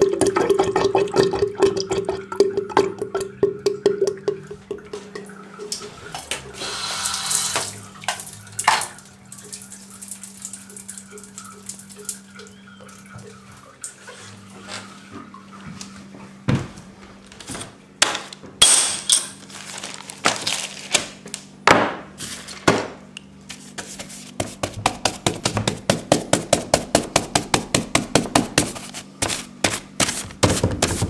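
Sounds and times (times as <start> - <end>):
faint steady hum: 0.0 - 24.4.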